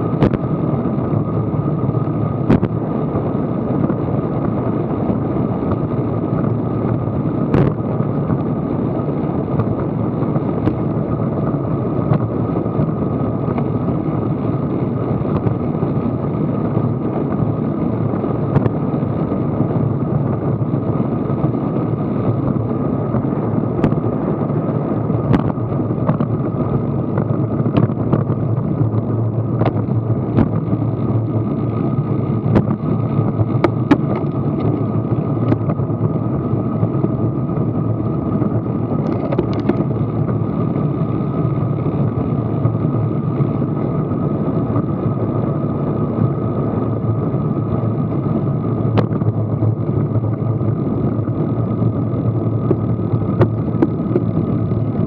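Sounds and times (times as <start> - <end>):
road rumble: 0.0 - 55.0
wind noise on microphone: 0.0 - 55.0.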